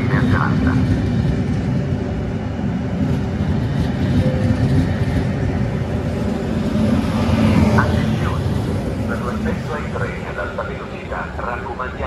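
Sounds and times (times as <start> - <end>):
train rumbling past slowly: 0.0 - 12.0.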